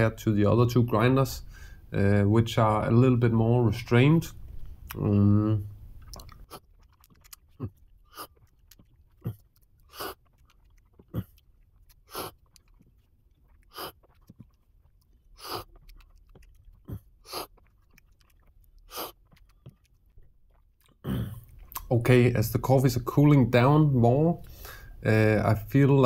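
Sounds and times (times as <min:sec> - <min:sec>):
swallowing: 0:04.5 - 0:22.0
coffee sips and slurps: 0:06.1 - 0:21.8.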